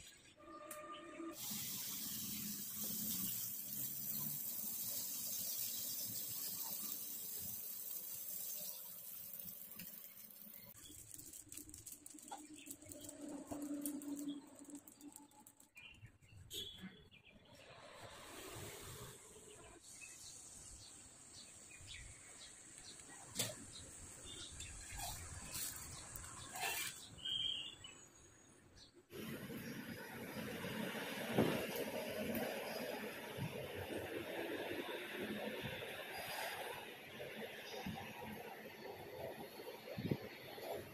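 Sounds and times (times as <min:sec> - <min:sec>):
batter sizzling on hot pan: 0:01.4 - 0:14.4.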